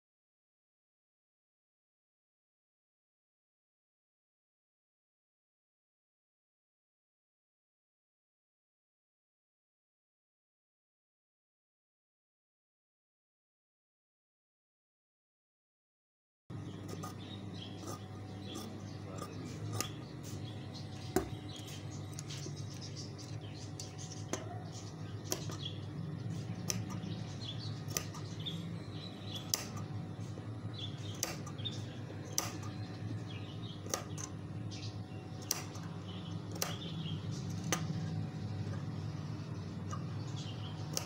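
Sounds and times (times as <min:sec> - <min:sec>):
low steady hum: 0:16.5 - 0:41.0
shears snipping cloth: 0:16.8 - 0:20.6, 0:26.3 - 0:28.5, 0:29.4 - 0:30.4, 0:31.0 - 0:31.6, 0:32.3 - 0:32.7, 0:35.4 - 0:35.9.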